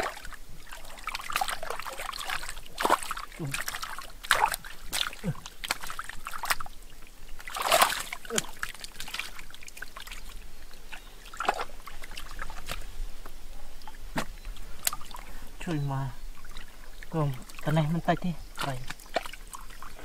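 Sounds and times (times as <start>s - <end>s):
hands splashing in muddy water: 0.0s - 6.8s, 7.4s - 12.9s, 18.6s - 20.0s.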